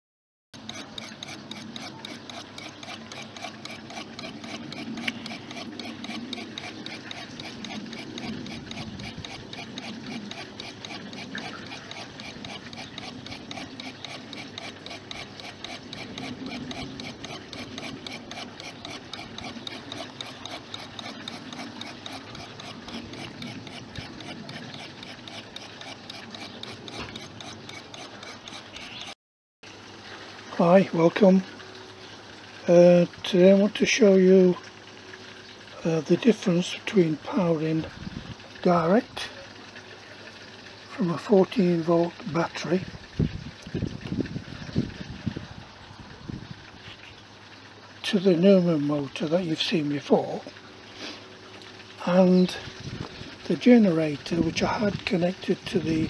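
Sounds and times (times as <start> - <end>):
motor spinning with rapid ticking: 0.6 - 29.2.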